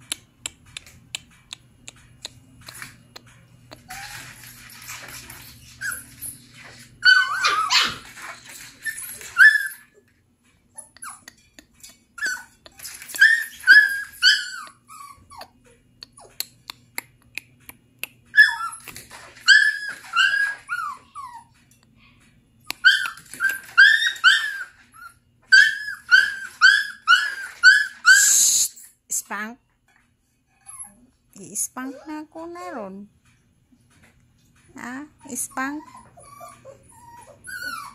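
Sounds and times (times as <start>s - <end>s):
puppies yipping and barking: 3.7s - 10.0s, 12.1s - 15.6s, 18.3s - 21.6s, 22.7s - 28.4s, 35.4s - 37.9s.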